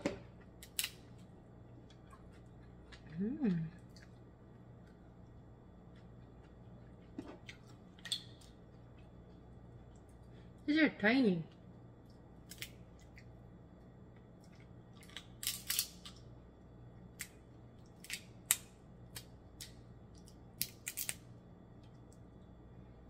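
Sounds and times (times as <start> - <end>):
crab shells cracking: 0.6 - 1.1, 12.4 - 13.3, 15.0 - 16.3, 17.2 - 21.2.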